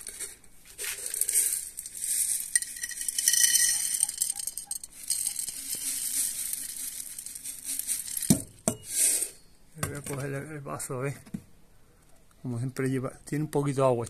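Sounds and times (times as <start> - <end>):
seed poured into a dish: 0.0 - 9.4.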